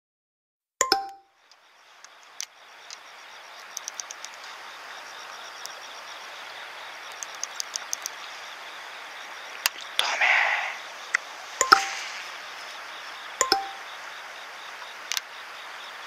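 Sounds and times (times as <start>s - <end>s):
faint high chirping: 0.9s - 16.0s
steady outdoor hiss: 1.0s - 16.0s
light ticks: 1.4s - 4.6s, 7.1s - 8.3s, 15.1s - 15.3s.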